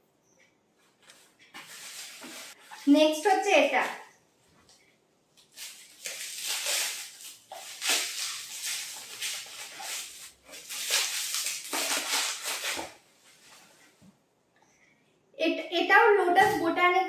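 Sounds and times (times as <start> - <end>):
plastic packing crinkling: 5.4 - 13.1
knife cutting plastic: 5.5 - 13.0.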